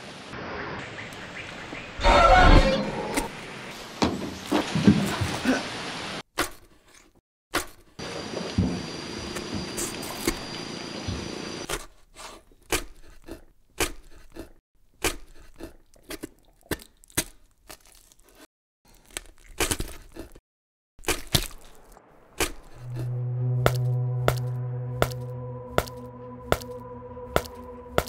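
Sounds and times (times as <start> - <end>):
sharp cracks and crunches: 16.7 - 20.4, 21.0 - 22.8.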